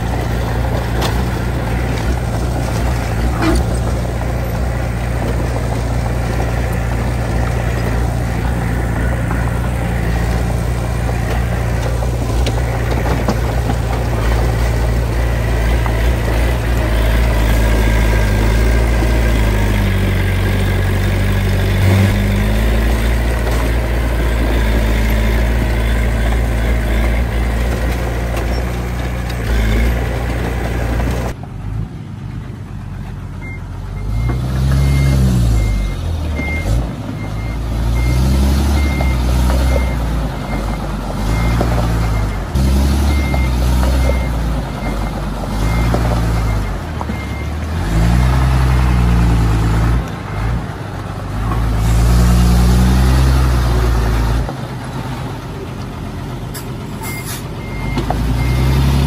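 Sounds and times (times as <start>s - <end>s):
engine revving: 0.0s - 31.4s, 34.0s - 54.5s, 57.7s - 59.0s
heavy machinery engines working: 0.0s - 59.0s
reversing alarm beeping: 33.4s - 47.6s, 57.0s - 59.0s.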